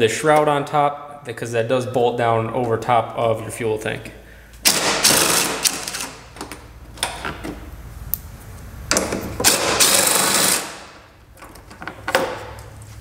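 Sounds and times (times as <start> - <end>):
fast ratcheting: 4.7 - 6.2, 9.4 - 10.9.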